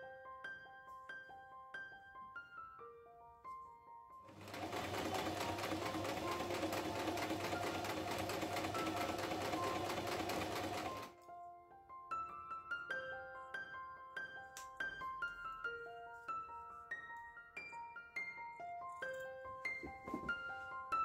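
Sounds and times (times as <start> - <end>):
soft piano music: 0.0 - 21.0
sewing machine stitching: 4.3 - 11.1.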